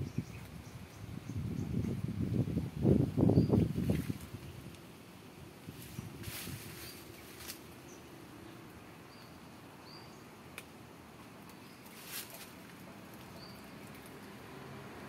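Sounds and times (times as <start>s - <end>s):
brief rustle: 5.8s - 7.7s, 11.4s - 14.3s.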